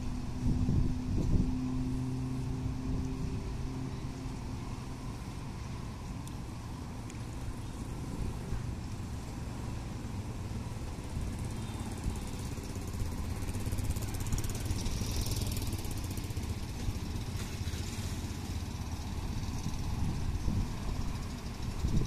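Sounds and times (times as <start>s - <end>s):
small boat engine rumbling: 0.0s - 22.0s.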